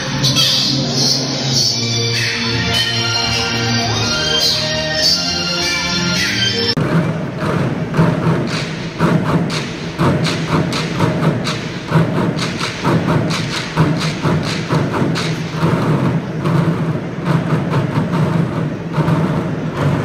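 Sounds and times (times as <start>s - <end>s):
thumping drumbeats: 6.8s - 20.0s.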